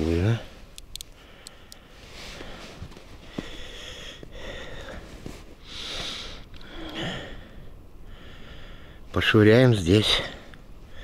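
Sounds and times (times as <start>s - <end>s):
faint ticks: 0.8s - 1.8s
man breathing and sniffing: 1.1s - 9.1s.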